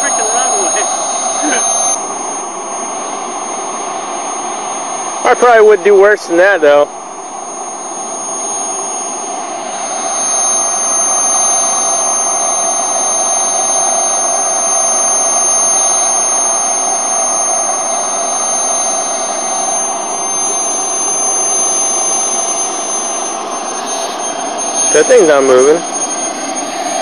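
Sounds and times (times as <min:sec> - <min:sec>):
high-pitched turbine whine: 0:00.0 - 0:27.0
model jet turbine rushing: 0:00.0 - 0:27.0.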